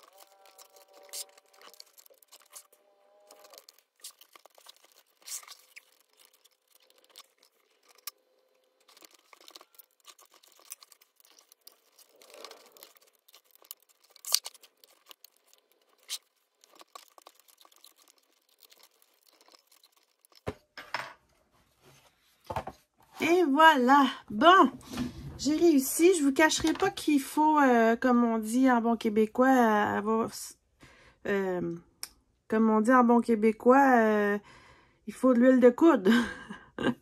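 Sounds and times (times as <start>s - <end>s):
screws clicking and scraping: 0.0s - 2.7s, 3.3s - 20.5s.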